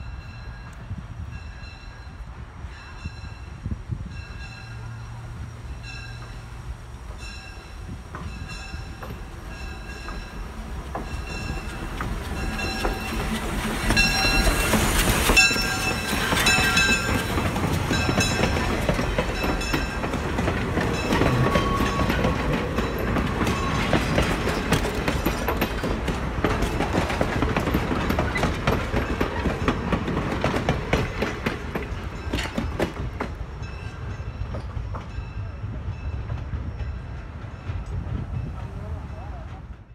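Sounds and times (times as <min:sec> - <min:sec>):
steam locomotive passing: 0:00.0 - 0:39.9
train wheels clacking over rail joints: 0:07.1 - 0:35.2
locomotive bell ringing: 0:07.2 - 0:26.9.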